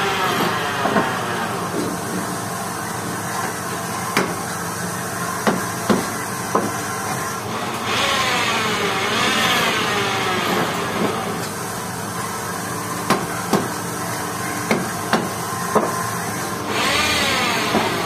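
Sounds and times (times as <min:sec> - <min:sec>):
hammer striking wood: 0:05.4 - 0:06.7, 0:14.7 - 0:16.0
lathe spindle whining down: 0:06.9 - 0:12.9, 0:15.5 - 0:18.0.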